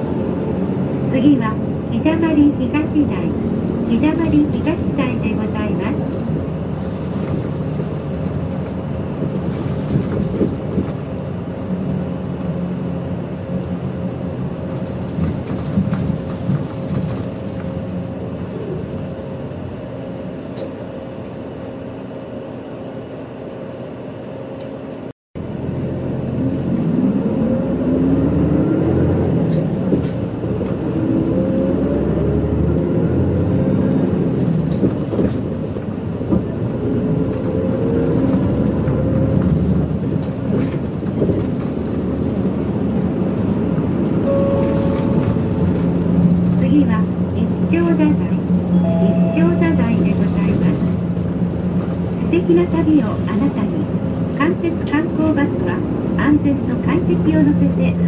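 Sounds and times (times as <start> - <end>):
bus engine drone: 0.0 - 58.0.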